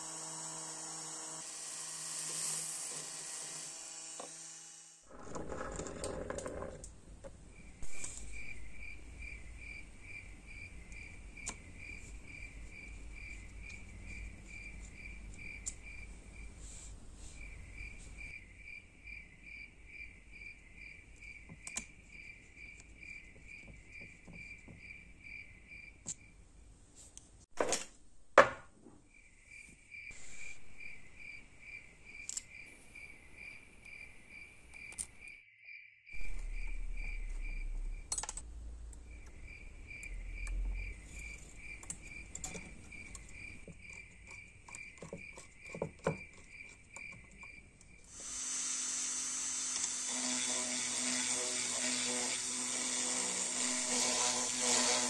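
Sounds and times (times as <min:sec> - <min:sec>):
cricket chirping: 0:07.5 - 0:16.5, 0:17.4 - 0:26.4, 0:29.1 - 0:48.1.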